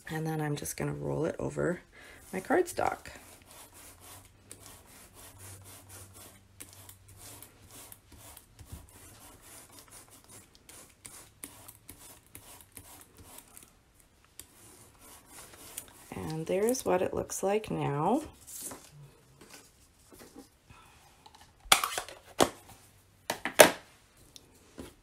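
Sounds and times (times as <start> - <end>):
foam roller rubbing on card: 2.2 - 13.7, 14.4 - 16.9.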